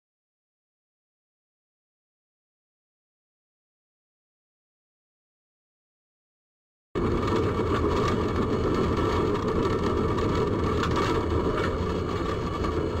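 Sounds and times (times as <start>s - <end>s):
tram running on track: 7.0s - 13.0s.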